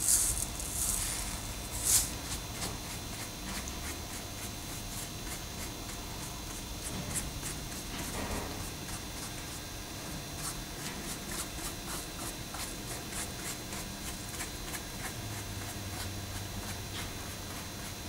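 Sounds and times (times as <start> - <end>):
paintbrush sweeping gravel: 0.0 - 3.3.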